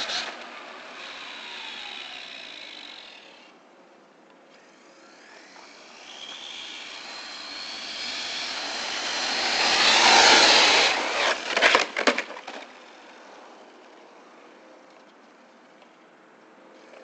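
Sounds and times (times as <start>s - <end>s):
rc truck motor whine: 0.0s - 3.6s, 4.4s - 14.0s.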